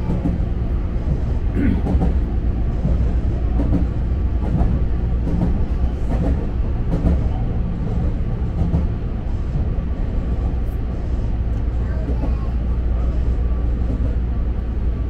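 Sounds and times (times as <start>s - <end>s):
wheels clicking over rails: 0.0s - 10.5s
train rumbling: 0.0s - 15.0s.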